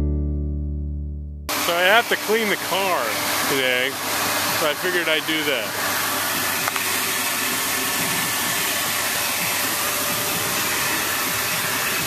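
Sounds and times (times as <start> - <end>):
vacuum suction through hose: 1.5 - 12.0.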